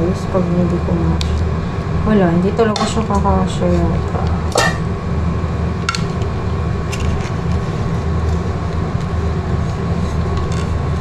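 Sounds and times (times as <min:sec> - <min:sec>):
low kitchen rumble and hum: 0:00.0 - 0:11.0
plate lid clinking on steel pot: 0:04.5 - 0:04.8.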